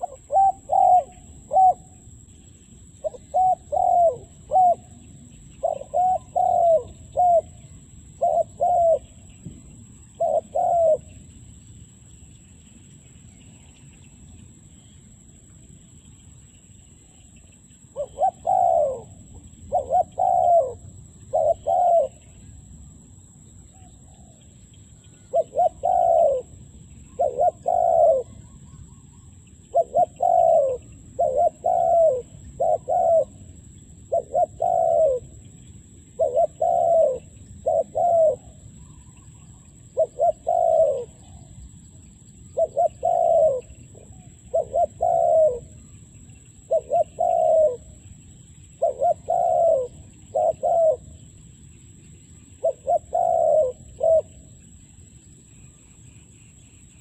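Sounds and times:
dove cooing: 0.0 - 2.2, 3.0 - 11.2, 18.0 - 22.6, 25.0 - 41.6, 42.5 - 46.0, 46.6 - 48.1, 48.7 - 51.3, 52.5 - 54.6.

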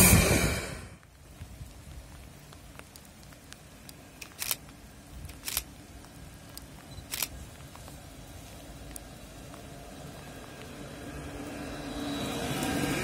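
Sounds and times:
low hum: 0.0 - 1.1
light ticks: 1.0 - 8.0, 8.8 - 9.8, 10.4 - 10.8.

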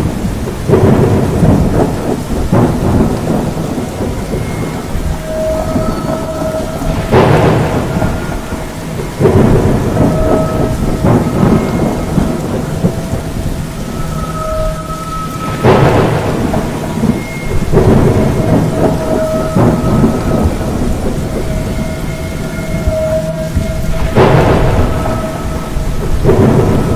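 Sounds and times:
heavy rain: 0.0 - 26.9
thunder cracks and rumbles: 0.0 - 26.9
faint short whistling tones: 4.2 - 7.0.

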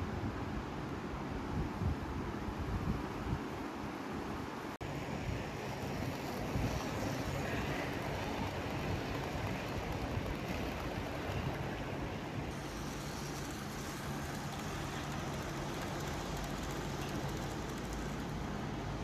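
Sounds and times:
model train wheels rumbling: 4.9 - 19.0.

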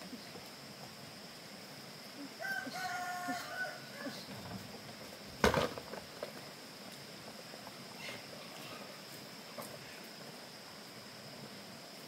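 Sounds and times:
rooster crowing: 2.4 - 4.4.

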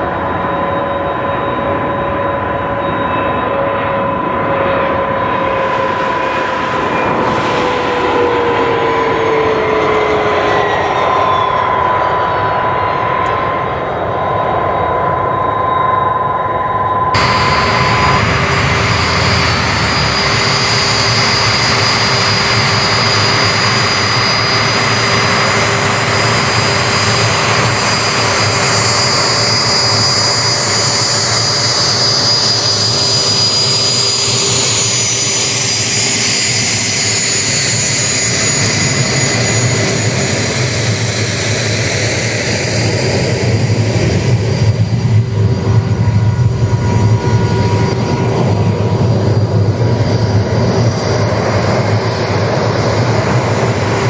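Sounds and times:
jet engine whining: 0.0 - 54.0
low engine rumble: 16.9 - 28.4.

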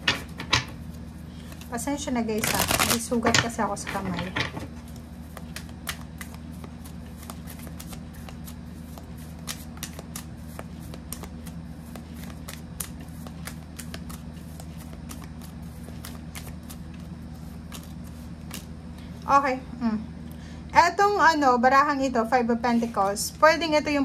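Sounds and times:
steady low hum: 0.0 - 24.0
cards being shuffled: 2.4 - 3.1, 4.8 - 19.2.

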